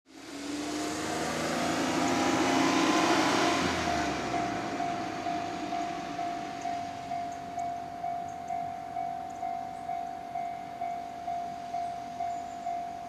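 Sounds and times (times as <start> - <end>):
loud rushing rumble: 0.1 - 8.2
level crossing warning bell: 2.2 - 13.0.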